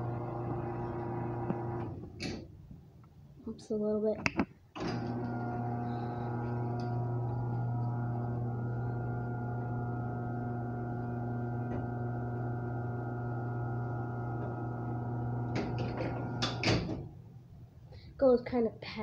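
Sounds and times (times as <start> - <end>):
garage door opener motor hum: 0.0 - 2.4, 4.8 - 17.0
knocks and clunks: 15.5 - 17.1.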